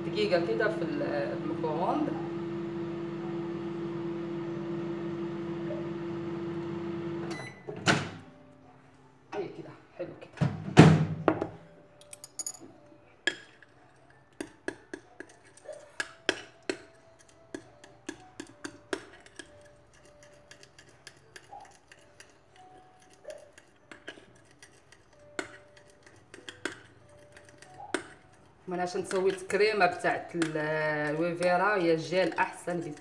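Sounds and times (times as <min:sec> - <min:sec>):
spoon scraping glass bowl: 0:14.9 - 0:33.0.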